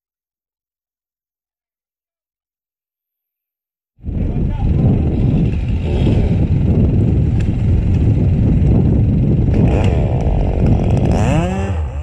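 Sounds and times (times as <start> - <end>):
chainsaw cutting wood: 5.2 - 6.5, 9.5 - 12.0.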